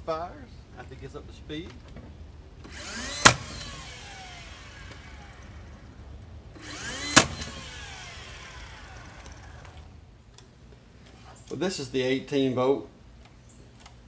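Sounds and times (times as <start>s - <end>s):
nailer flywheel whine: 2.6s - 10.0s
nail driven with sharp crack: 2.7s - 3.9s, 6.6s - 7.8s.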